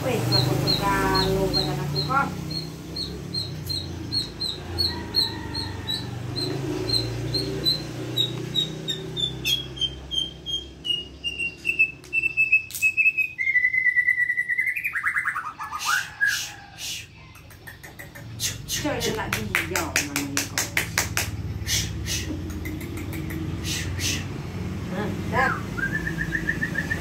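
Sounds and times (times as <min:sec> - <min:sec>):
bird trilling: 0:00.0 - 0:18.6, 0:25.4 - 0:27.0
bird whistling song: 0:05.9 - 0:17.0, 0:25.5 - 0:27.0.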